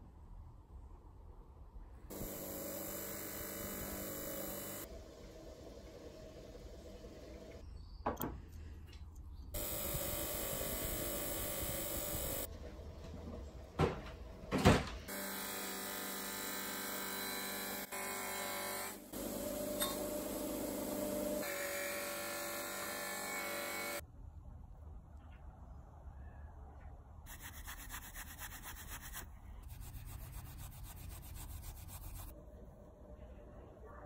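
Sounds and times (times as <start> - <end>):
bench grinder buffing metal: 2.1 - 4.9.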